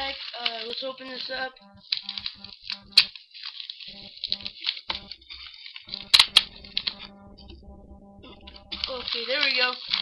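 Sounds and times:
plastic bubble wrap crinkling: 0.0s - 2.6s, 3.2s - 6.0s.

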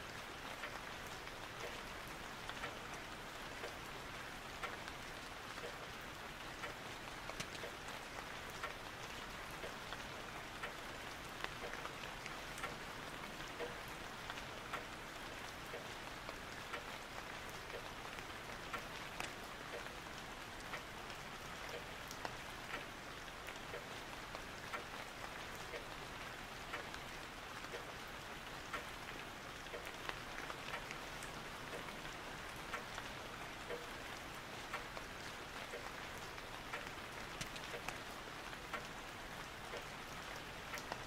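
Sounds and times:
steady rain hiss: 0.0s - 41.0s
drops ticking: 36.7s - 38.0s.

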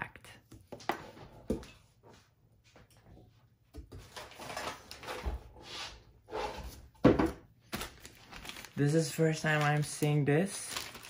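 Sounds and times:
cardboard and foam rustling: 6.6s - 11.0s.

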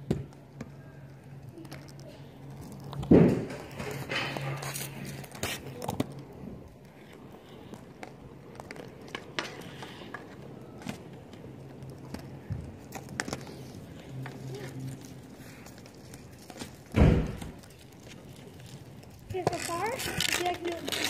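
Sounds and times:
hockey stick tapping ball on asphalt: 0.0s - 4.0s, 7.2s - 14.4s, 19.2s - 21.0s.

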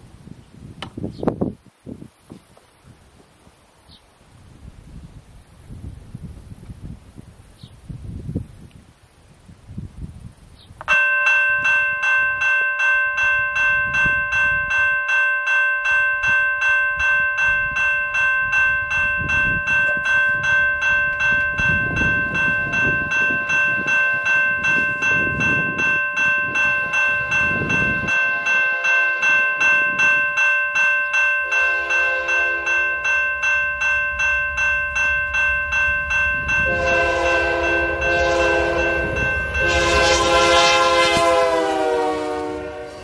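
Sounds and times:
level crossing bell ringing: 10.9s - 41.0s.

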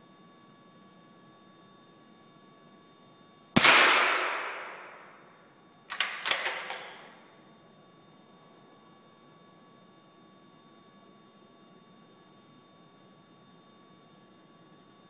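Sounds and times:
rifle shot: 3.6s - 5.2s
rifle bolt metallic clicks: 5.9s - 7.0s.

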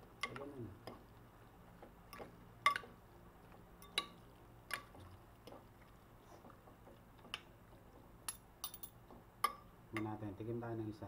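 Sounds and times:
wet mixing: 0.0s - 8.2s.

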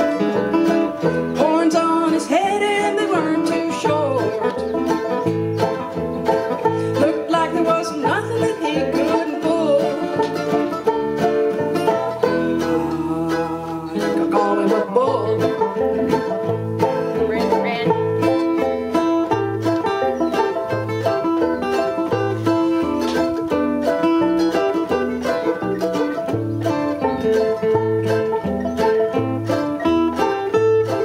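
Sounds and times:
acoustic string band playing folk: 0.0s - 31.0s
woman singing: 1.4s - 4.5s, 6.9s - 10.3s, 12.4s - 15.8s.

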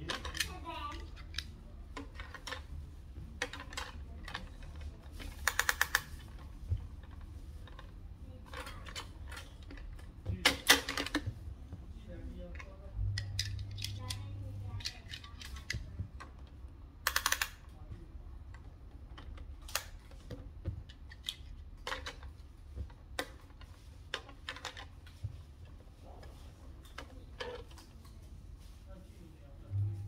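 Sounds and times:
plastic toy clicks and rattles: 0.0s - 2.7s, 3.4s - 11.3s, 12.4s - 17.7s, 18.6s - 22.4s, 23.2s - 25.3s, 26.3s - 28.0s
low steady hum: 0.0s - 30.0s.

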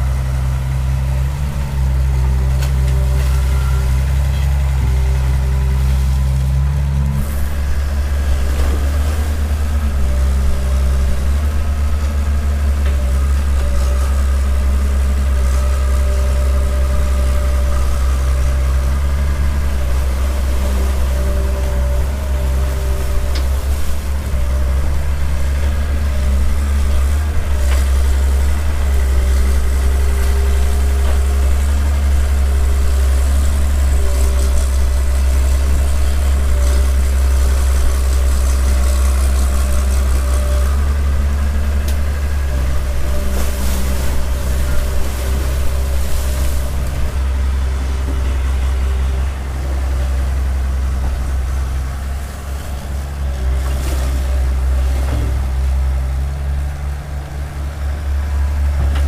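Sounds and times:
excavator diesel engine running: 0.0s - 59.0s
faint hydraulic whine: 2.5s - 14.8s.

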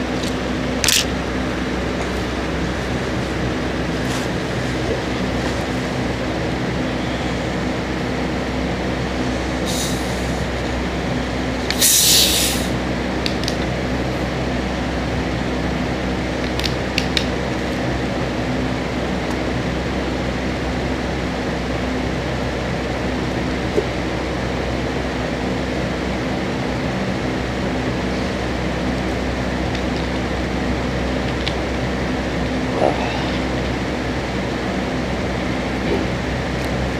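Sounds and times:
steady mechanical hum: 0.0s - 36.9s
plastic bottle cap twisting: 0.8s - 1.1s
carbonation hiss: 11.8s - 12.7s.

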